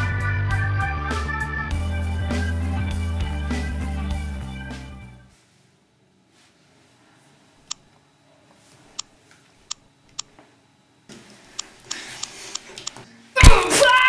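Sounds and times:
background music: 0.0s - 5.3s
faint room noise: 5.2s - 14.0s.

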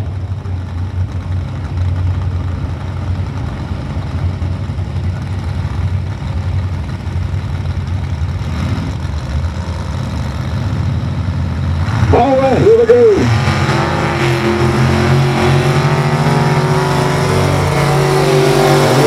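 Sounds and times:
truck engines idling: 0.0s - 19.0s.

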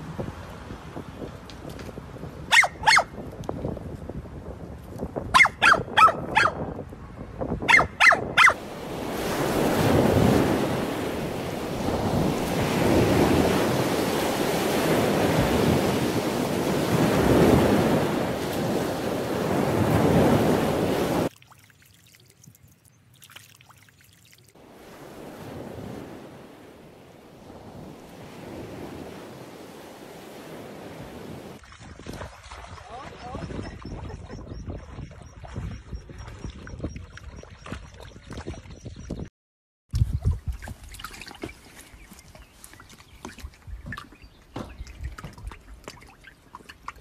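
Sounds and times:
wind buffeting microphone: 0.0s - 21.3s, 27.3s - 39.3s, 39.9s - 41.1s
dog barking: 2.5s - 3.1s, 5.3s - 6.6s, 7.7s - 8.6s
breaking surf: 8.6s - 21.3s, 24.6s - 31.6s.

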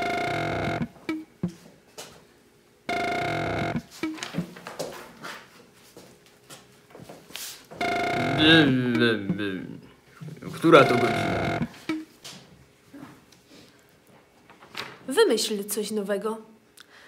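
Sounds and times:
loud electronic tone: 0.0s - 0.9s, 2.9s - 3.9s, 7.8s - 8.9s, 10.6s - 12.0s.

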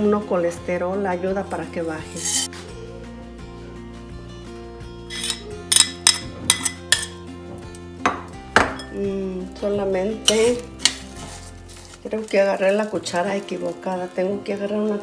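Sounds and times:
background music: 0.0s - 15.0s
metal spoon clinking on a saucepan: 5.1s - 7.2s, 10.3s - 11.0s.

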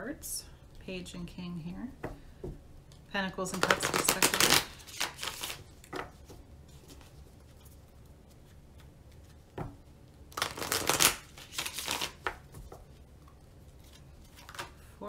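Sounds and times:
cards tapping: 3.5s - 7.0s, 10.4s - 12.9s
cards being shuffled: 3.5s - 14.8s.

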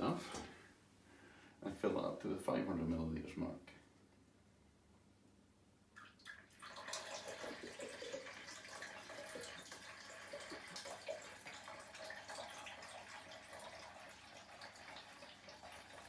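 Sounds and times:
liquid pouring into plastic jug: 6.0s - 16.0s.

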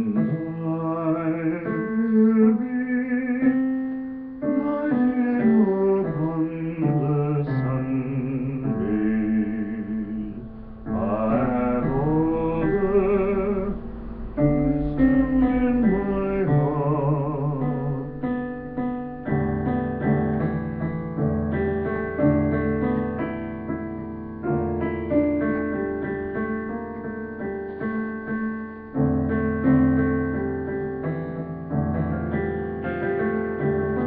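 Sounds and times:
piano chords: 0.0s - 34.0s
wordless voice gliding in pitch: 4.5s - 18.2s.

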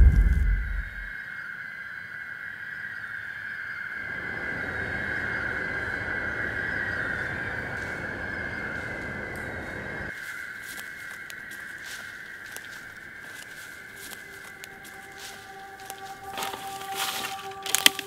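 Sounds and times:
deep boom: 0.0s - 1.1s
hissing rumble: 0.0s - 1.1s
high-pitched drone: 13.3s - 18.0s.

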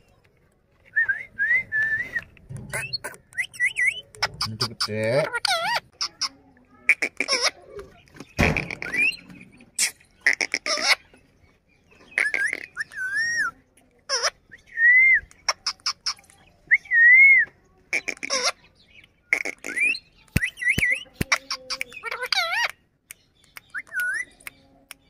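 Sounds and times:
harsh bird calls and clicks: 0.0s - 1.0s, 2.2s - 25.0s.

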